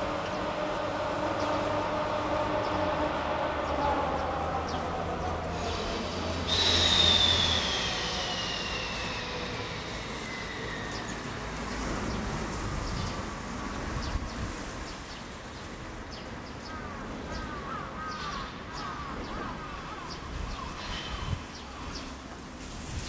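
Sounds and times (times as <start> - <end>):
faint falling whine: 0.0 - 11.9
low outdoor rumble: 0.0 - 14.4.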